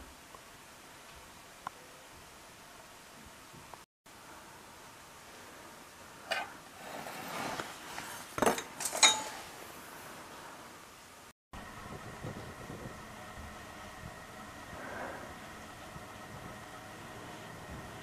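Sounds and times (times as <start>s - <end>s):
metal scraping on wood: 6.3s - 9.5s.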